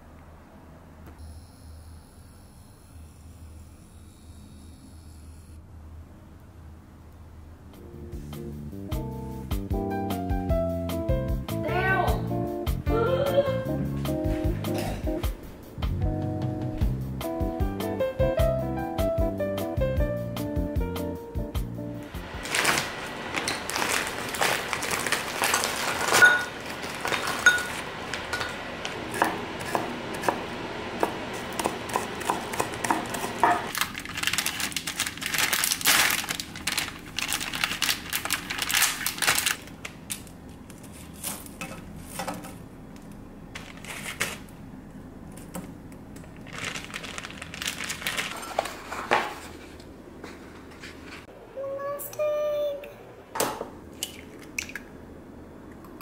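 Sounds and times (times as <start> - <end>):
plastic packaging crinkling: 22.2 - 28.6, 33.7 - 41.6, 43.5 - 44.5, 46.2 - 49.1.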